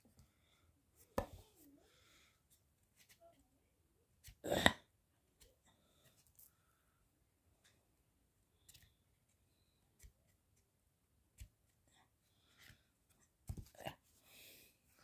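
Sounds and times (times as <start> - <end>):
board book pages turning: 2.9 - 3.4.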